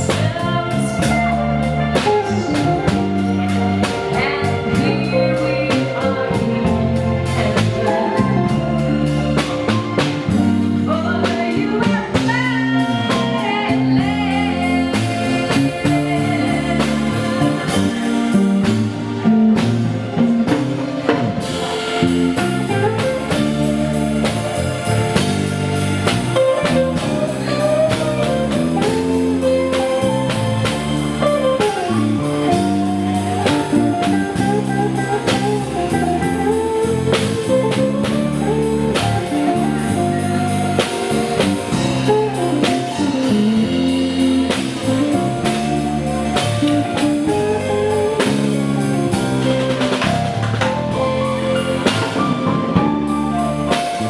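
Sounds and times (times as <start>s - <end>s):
woman singing: 0.0s - 9.4s, 10.3s - 18.9s, 31.2s - 49.8s
electric guitar: 0.0s - 54.0s
keyboard: 0.0s - 54.0s
steady drum beat: 0.0s - 54.0s.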